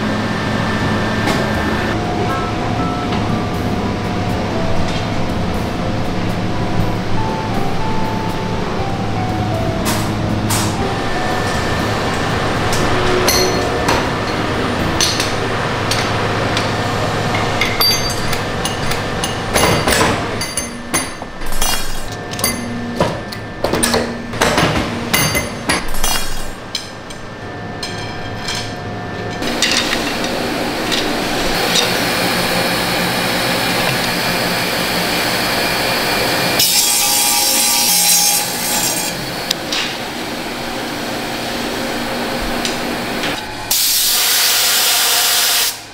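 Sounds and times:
workshop machine hum: 0:00.0 - 0:45.9
metal knocks and clinks: 0:17.4 - 0:24.1
water-cooled cutting wheel: 0:28.9 - 0:45.9.

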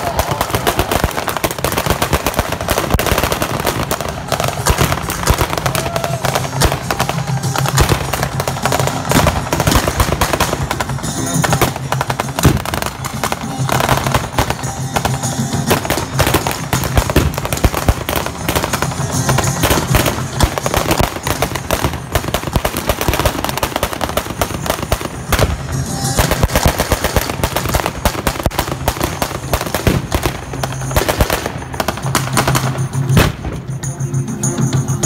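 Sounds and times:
music from loudspeaker: 0:00.1 - 0:35.0.

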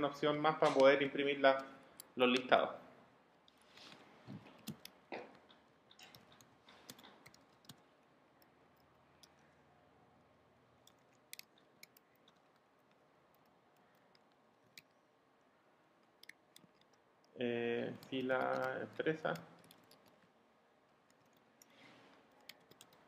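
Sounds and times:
keyboard typing clicks: 0:04.5 - 0:07.8, 0:17.9 - 0:20.3, 0:21.1 - 0:23.0.

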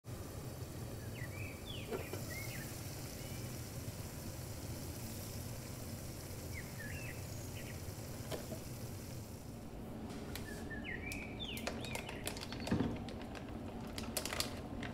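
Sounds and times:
steady low hum: 0:00.0 - 0:14.9
bird chirping: 0:00.9 - 0:03.6, 0:06.4 - 0:08.2, 0:10.3 - 0:12.9.

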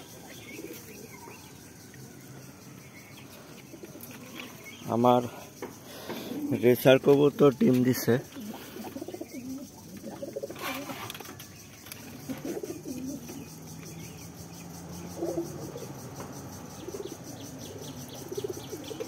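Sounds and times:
pigeons cooing: 0:00.0 - 0:01.5, 0:05.9 - 0:06.9, 0:08.1 - 0:19.0.

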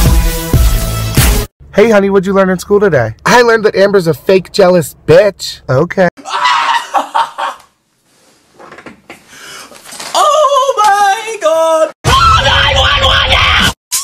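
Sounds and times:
music with heavy bass beat: 0:00.0 - 0:01.5
wordless wailing voice: 0:10.2 - 0:13.8.

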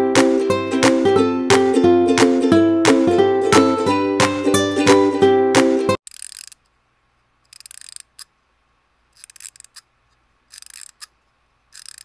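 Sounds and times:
rattling clicks: 0:06.0 - 0:06.7, 0:07.5 - 0:08.3, 0:09.2 - 0:09.9, 0:10.5 - 0:12.0.

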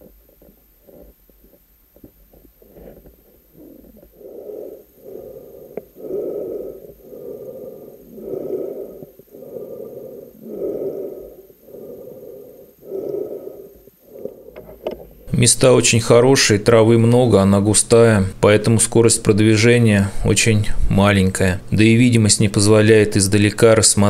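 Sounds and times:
breathing through a snorkel: 0:02.6 - 0:15.3.

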